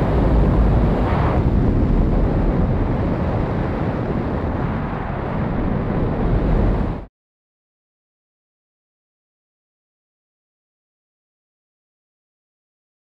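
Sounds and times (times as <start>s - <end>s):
wind rushing over microphone: 0.0s - 7.1s.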